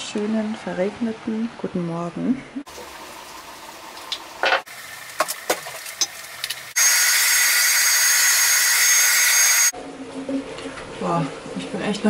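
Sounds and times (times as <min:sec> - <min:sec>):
hair dryer running: 0:06.8 - 0:09.7.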